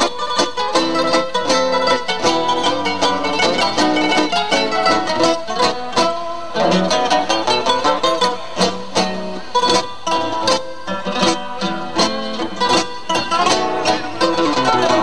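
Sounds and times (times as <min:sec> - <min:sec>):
classical guitar playing tango: 0:00.0 - 0:15.0.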